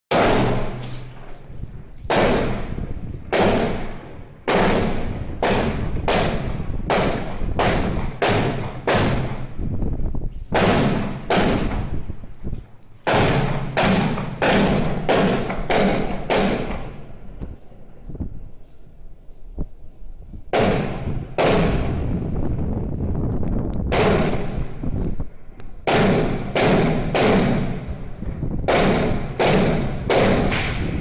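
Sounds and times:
heavy machine-gun shots echoing: 0.1s - 1.3s, 2.1s - 9.6s, 10.6s - 12.0s, 13.0s - 17.2s, 20.5s - 22.3s, 23.9s - 24.8s, 25.8s - 31.0s.

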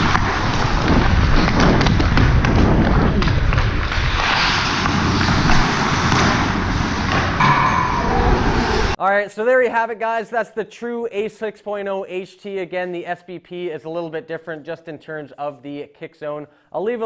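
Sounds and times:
skates scraping on ice: 0.0s - 7.5s
wind rumble on camera: 0.0s - 9.0s.

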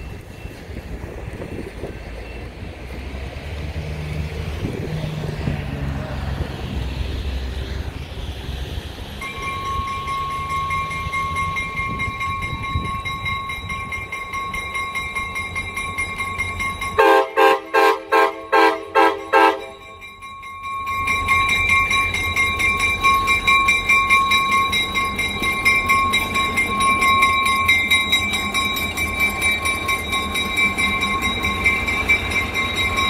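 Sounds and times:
locomotive bell dinging: 0.0s - 3.0s, 9.1s - 33.0s
diesel locomotive rumble: 0.0s - 33.0s
train air horn blasts: 17.0s - 19.8s.

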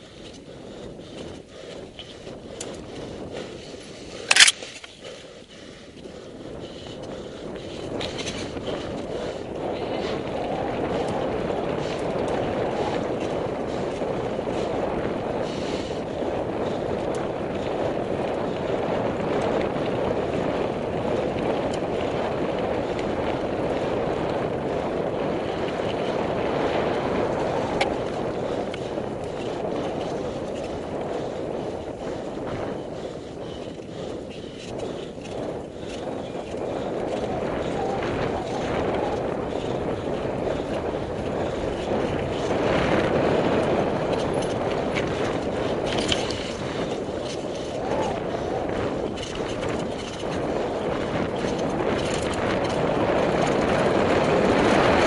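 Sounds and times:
bike tyres rolling on dirt: 0.0s - 55.0s
bike clicks and knocks: 1.1s - 3.1s, 3.8s - 6.1s, 7.9s - 9.1s, 16.5s - 24.5s, 25.4s - 32.0s, 32.6s - 55.0s.

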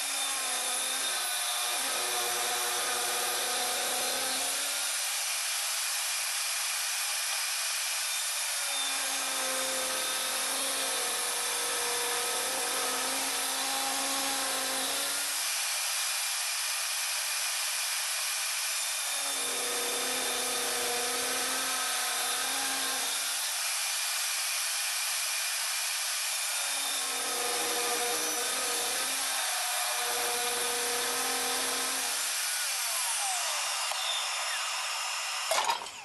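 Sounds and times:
saw blade cutting wood: 19.4s - 36.0s
table saw whine: 26.3s - 36.0s.

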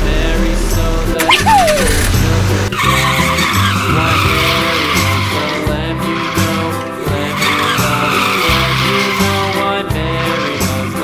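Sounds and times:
background music: 0.0s - 11.0s
tyre skid screeching: 2.8s - 11.0s.

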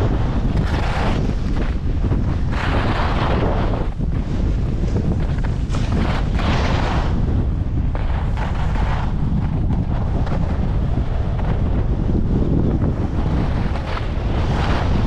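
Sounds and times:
skis scraping over snow: 0.0s - 15.0s
wind buffeting microphone: 0.0s - 15.0s.

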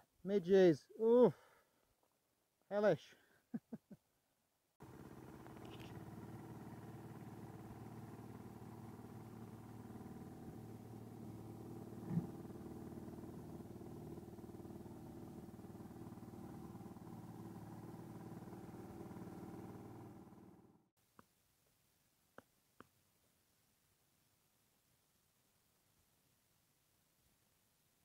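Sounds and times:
outboard motor running: 4.8s - 20.9s.

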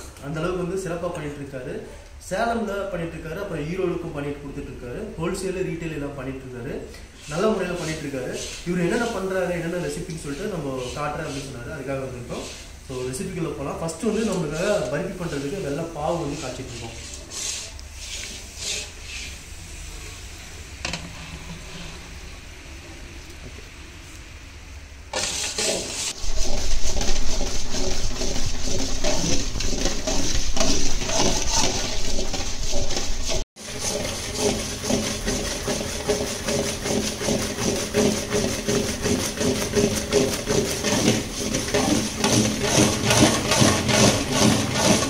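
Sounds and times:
metal ladle scraping: 14.4s - 19.4s, 25.2s - 45.0s
syrup boiling and bubbling: 25.6s - 45.0s.

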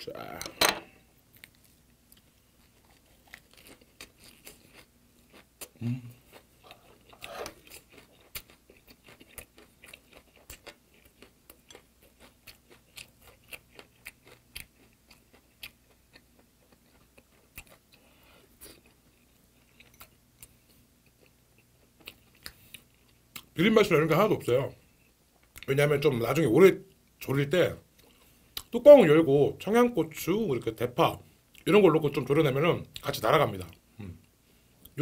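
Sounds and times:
person chewing wetly: 1.3s - 23.5s.

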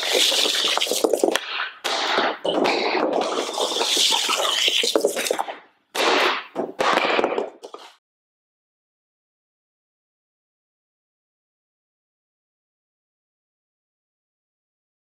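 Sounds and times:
sharp clacks of shots: 0.0s - 7.7s
stick and puck scraping floor: 0.0s - 8.0s.

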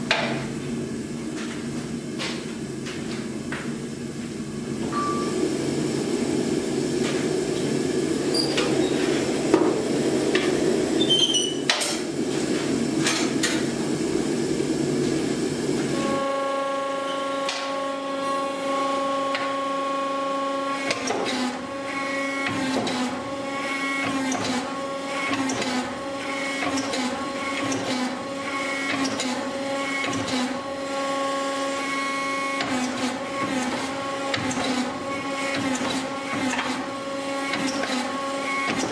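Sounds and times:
gas forge burner rushing: 5.4s - 16.0s.

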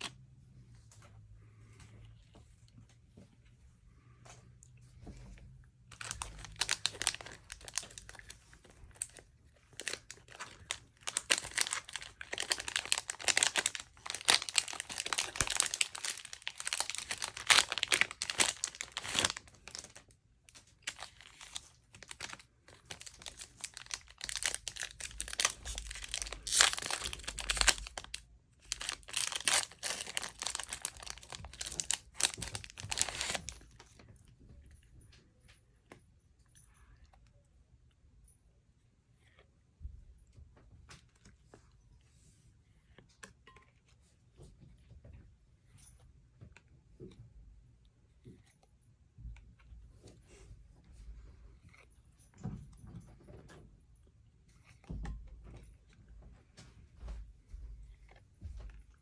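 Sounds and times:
plastic wrapper tearing and crinkling: 5.9s - 34.0s.

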